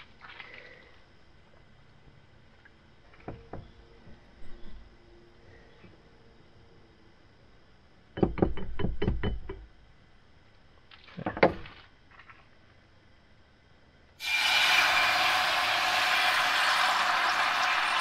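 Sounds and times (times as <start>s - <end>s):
egg sizzling in frying pan: 14.2s - 18.0s.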